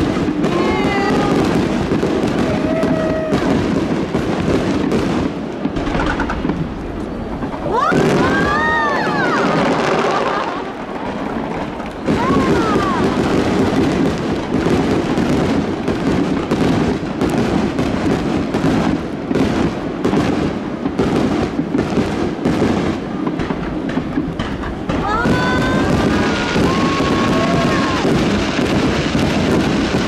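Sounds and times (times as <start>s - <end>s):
firework whistle: 0.0s - 4.0s, 5.7s - 10.7s, 24.9s - 30.0s
crowd chatter: 0.0s - 30.0s
fireworks bangs and crackles: 0.0s - 30.0s.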